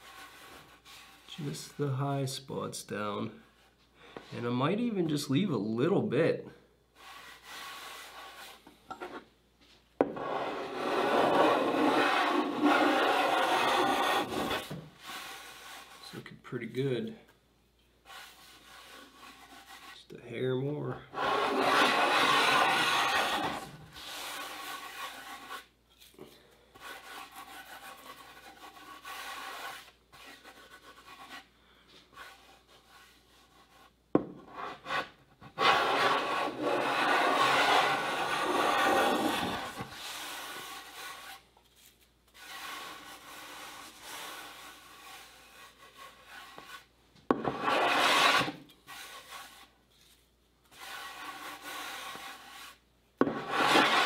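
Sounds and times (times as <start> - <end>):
hand plane cutting wood: 10.0 - 15.6, 21.1 - 25.6, 34.5 - 41.4, 45.8 - 49.6, 50.7 - 54.0.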